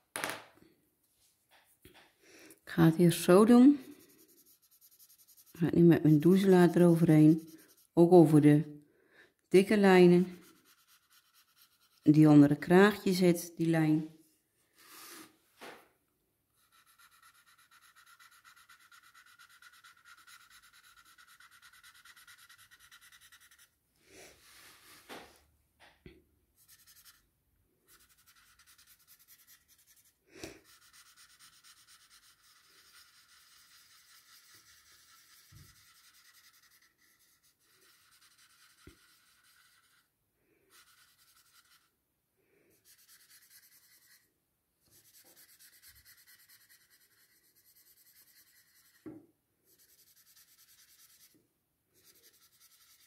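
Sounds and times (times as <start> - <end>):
paper stump rubbing on paper: 3.7 - 8.4, 10.2 - 12.2, 16.6 - 23.7, 27.9 - 40.1, 40.7 - 41.9, 42.8 - 44.2, 44.9 - 49.0, 49.7 - 51.3, 52.0 - 53.0.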